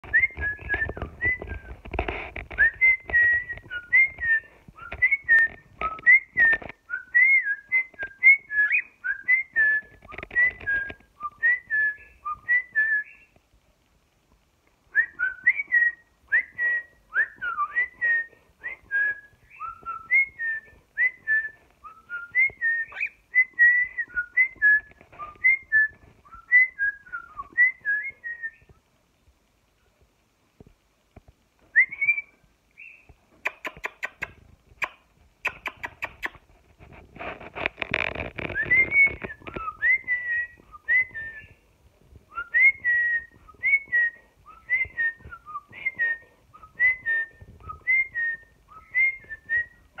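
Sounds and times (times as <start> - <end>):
soft clicking and rustling: 0.0 - 16.5, 17.1 - 50.0
cockatiel whistling: 21.8 - 24.6, 42.4 - 50.0.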